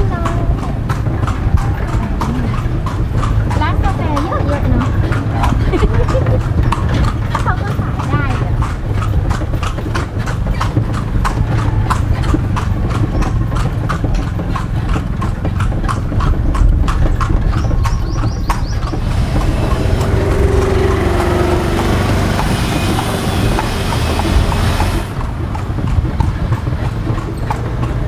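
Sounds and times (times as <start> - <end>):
horse hooves clip-clopping: 0.0 - 28.0
steady rushing noise: 19.0 - 27.1.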